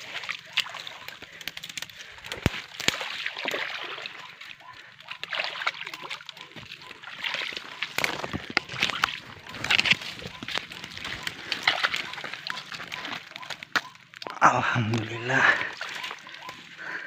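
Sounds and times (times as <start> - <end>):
footsteps splashing through water: 0.0 - 17.0.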